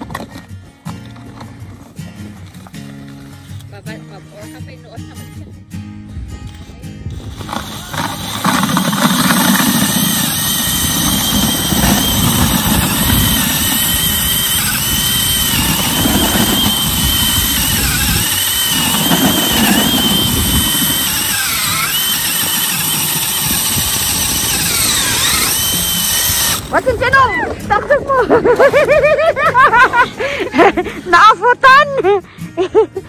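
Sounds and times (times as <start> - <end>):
ice auger grinding: 0.0 - 4.4, 7.1 - 30.7
cordless drill motor whine: 7.1 - 26.8.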